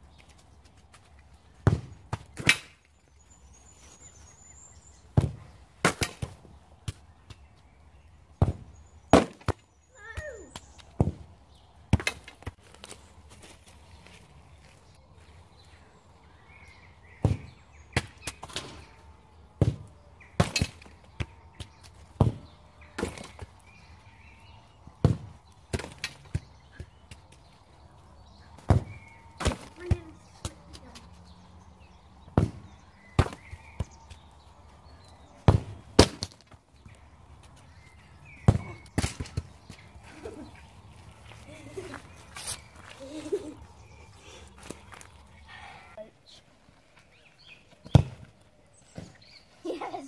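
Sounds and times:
football kicked on grass: 1.6 - 2.5, 5.0 - 7.4, 8.4 - 14.8, 17.1 - 18.6, 19.6 - 23.8, 24.9 - 27.4, 28.6 - 30.6, 32.2 - 34.3, 34.9 - 37.5, 38.2 - 39.9, 47.7 - 49.3.

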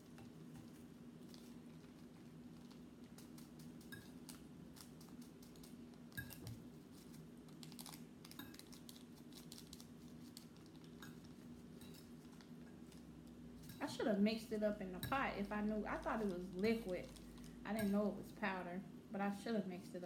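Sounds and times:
fork stirring noodles on plate: 0.0 - 7.2, 8.3 - 13.9
steady low hum: 0.0 - 20.0
packet crinkling: 6.8 - 13.2, 16.0 - 17.7.

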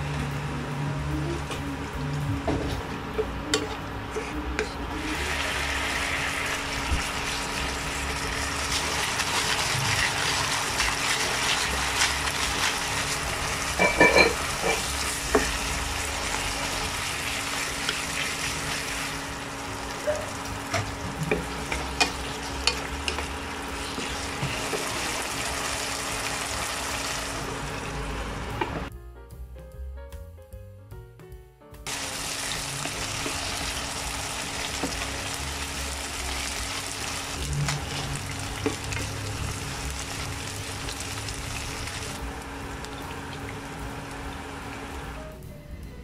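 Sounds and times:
chicken sizzling in a pan: 5.0 - 28.4, 31.9 - 45.1.

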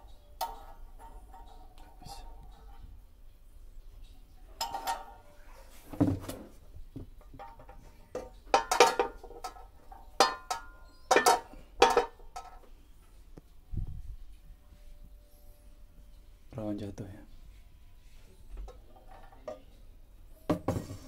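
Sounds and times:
frying pans clanking on hooks: 4.6 - 5.2, 8.3 - 12.6.

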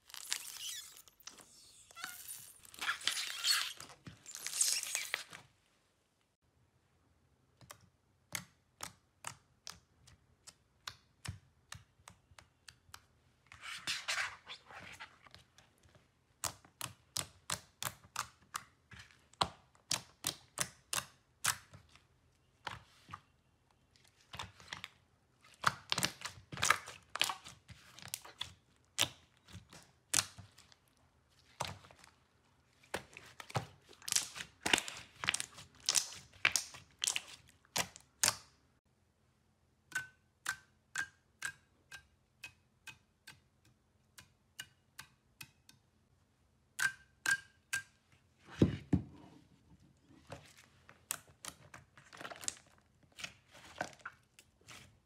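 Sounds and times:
slime squishing: 24.0 - 38.6, 50.1 - 55.0
slime clicking and popping: 34.0 - 38.5.

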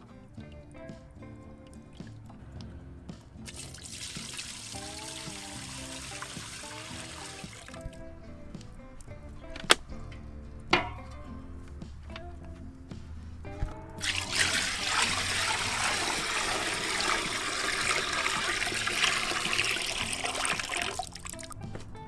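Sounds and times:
background music: 0.0 - 22.0
juice pouring into metal pot: 3.4 - 8.1, 14.0 - 21.6.

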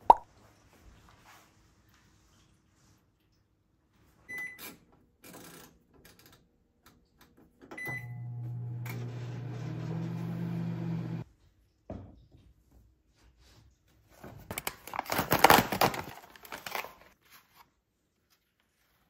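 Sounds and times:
microwave control panel beeps: 4.3 - 4.6, 7.7 - 9.0
microwave oven humming: 7.8 - 11.2.

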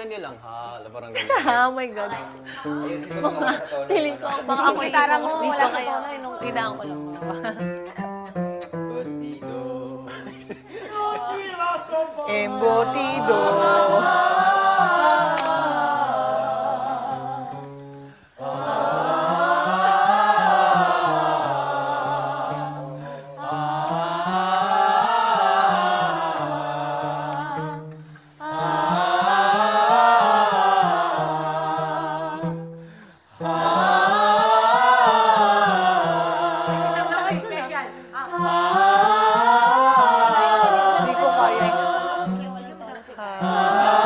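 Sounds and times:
group singing vocal scales: 2.1 - 44.0
people breathing in: 17.8 - 18.4, 32.7 - 33.4, 37.8 - 38.2.

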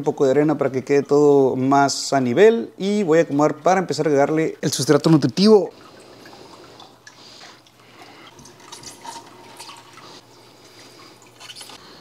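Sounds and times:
water drips and splashes: 4.8 - 10.2.

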